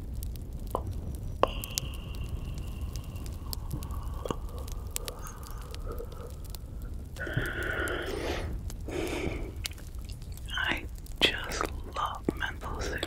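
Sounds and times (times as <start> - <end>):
campfire crackling: 0.0 - 13.0
low steady hum: 0.0 - 13.0
breathing close to microphone: 1.0 - 10.0.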